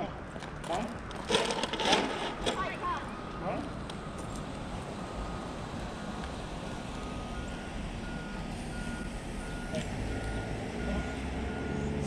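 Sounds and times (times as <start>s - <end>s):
engine running: 3.2s - 12.0s
reversing alarm beeping: 5.2s - 5.6s, 6.6s - 12.0s.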